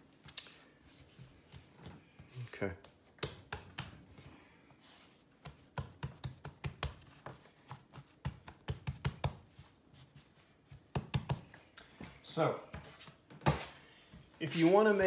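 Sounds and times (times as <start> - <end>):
hands kneading dough thuds: 0.0 - 12.0.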